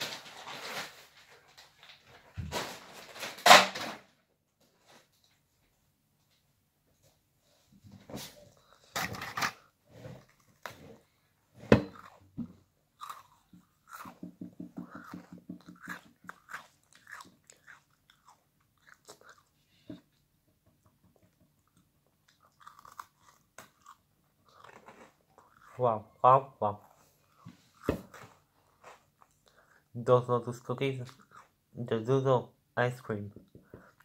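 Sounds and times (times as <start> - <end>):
crunchy chewing: 11.8 - 12.3, 12.9 - 20.2, 21.6 - 26.1, 26.8 - 29.9, 31.0 - 31.6
biscuit crunching: 11.8 - 19.9, 21.6 - 26.2.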